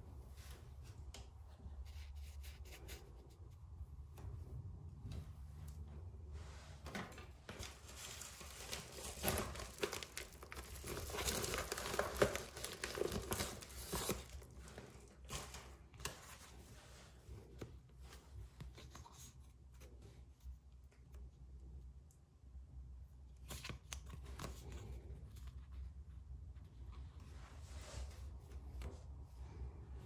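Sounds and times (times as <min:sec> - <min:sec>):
plastic bubble mailer crinkling: 0:07.6 - 0:15.8.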